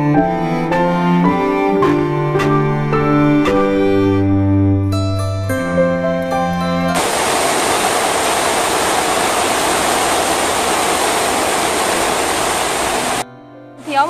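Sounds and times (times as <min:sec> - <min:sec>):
background music: 0:00.0 - 0:07.0, 0:13.2 - 0:14.0
heavy rain on a metal roof: 0:07.0 - 0:13.2.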